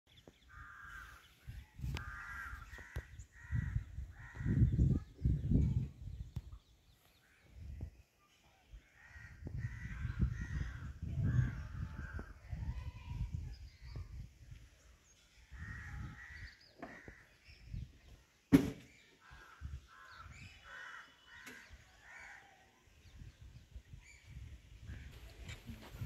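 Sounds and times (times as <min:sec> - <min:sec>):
crows cawing: 0:00.5 - 0:01.3, 0:01.9 - 0:04.7, 0:09.0 - 0:12.3, 0:15.5 - 0:17.4, 0:19.2 - 0:22.6
sharp knock: 0:18.5 - 0:18.9.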